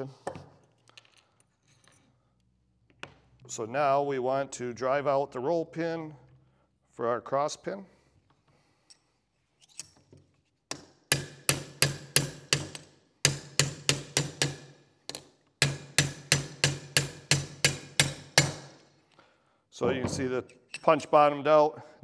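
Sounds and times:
hammer striking steel punch: 10.7s - 18.8s.

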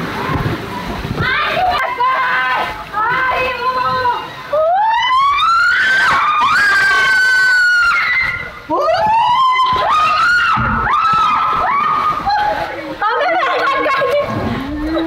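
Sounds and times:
people screaming: 3.9s - 13.4s.

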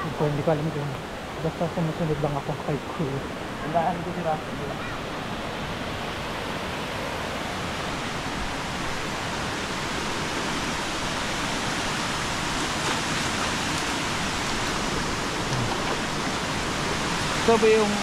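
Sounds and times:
waterfall rushing into a pool: 7.5s - 18.0s.

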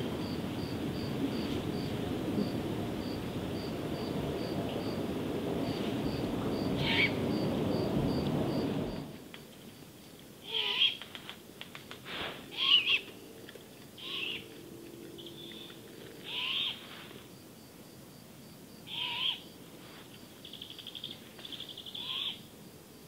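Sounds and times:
owl raspy screech calls: 6.8s - 7.2s, 10.4s - 11.0s, 12.5s - 13.1s, 14.0s - 14.5s, 15.2s - 16.8s, 18.9s - 19.5s, 21.7s - 22.5s.

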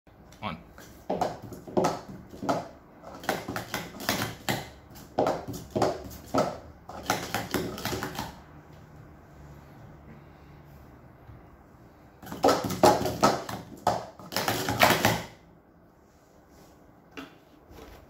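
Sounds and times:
plastic cups clacking: 1.1s - 8.4s, 12.2s - 15.4s.

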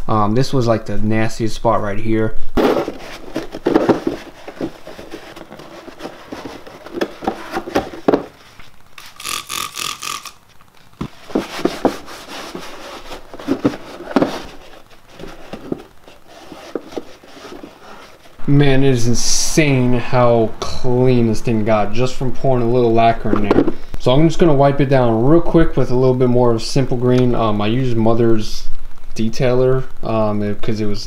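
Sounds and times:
plastic knocks and scrapes: 2.6s - 8.7s, 11.0s - 18.4s
cloth rag scrubbing plastic: 2.6s - 10.2s, 11.0s - 18.4s.

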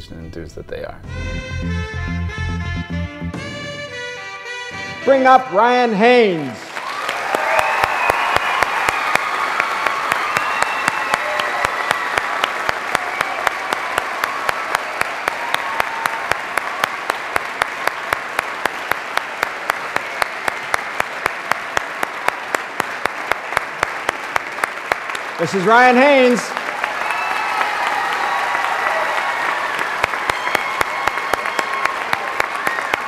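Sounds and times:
audience applauding: 5.6s - 33.0s
hands clapping close by: 6.8s - 33.0s.

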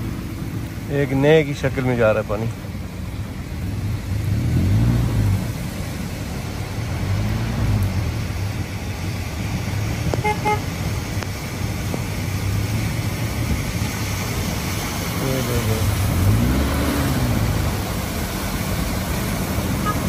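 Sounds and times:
cars driving through floodwater: 0.0s - 20.0s
car horn tooting: 10.2s - 10.7s.

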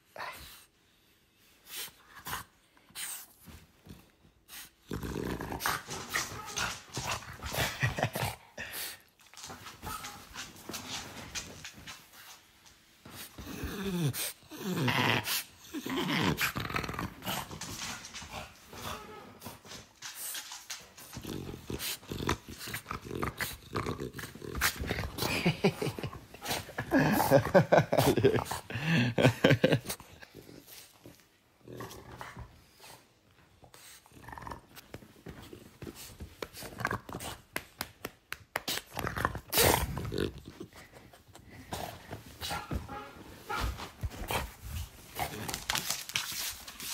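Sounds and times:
dog growly moaning: 4.8s - 8.7s, 13.4s - 17.9s.

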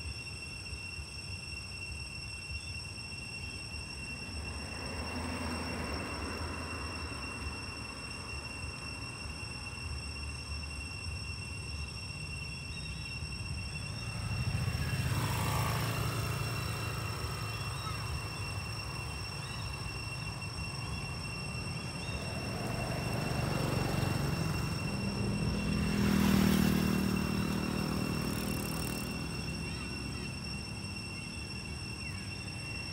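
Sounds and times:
road traffic rumble: 3.4s - 32.9s
vehicle passing by: 4.4s - 7.9s, 13.8s - 32.8s
motorbike engine: 21.8s - 30.9s.

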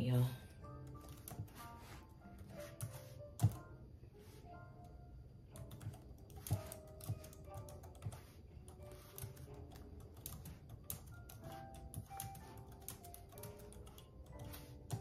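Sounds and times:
soft background music: 0.0s - 15.0s
keyboard typing clicks: 5.5s - 15.0s.

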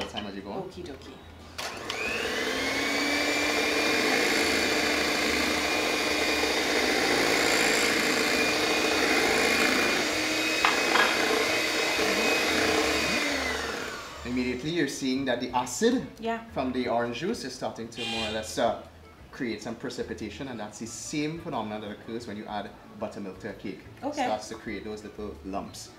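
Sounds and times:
electric hand mixer whirring: 1.6s - 14.8s, 18.0s - 18.3s.

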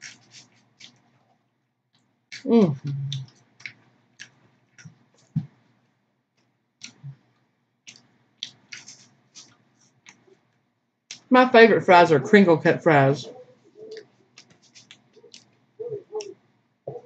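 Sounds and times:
chewing crunchy food: 0.0s - 5.3s, 7.9s - 10.3s, 13.8s - 15.6s
wet mouth clicks: 6.8s - 7.1s, 7.9s - 10.2s.

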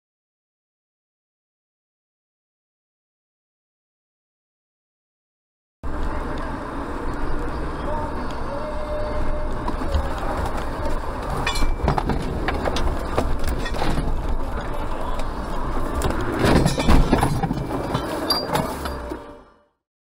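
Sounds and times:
road rumble: 5.8s - 19.7s
sharp knocks and clatters: 10.0s - 14.8s, 16.0s - 19.1s.

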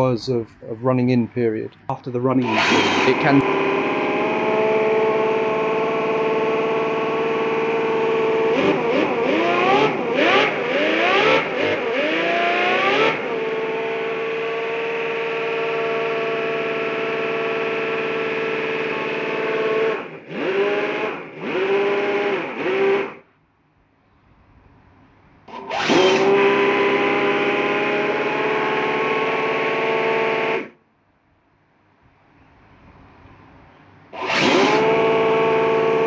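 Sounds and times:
model engine revving: 2.3s - 23.2s, 25.5s - 30.8s, 34.1s - 36.0s.

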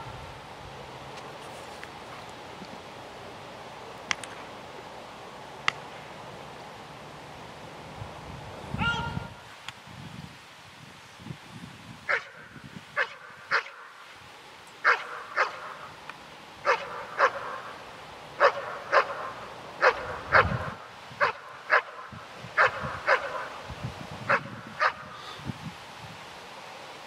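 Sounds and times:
dog barking: 12.1s - 12.4s, 13.0s - 13.8s, 14.8s - 15.8s, 16.6s - 17.7s, 18.4s - 22.0s, 22.6s - 23.6s, 24.3s - 25.1s.

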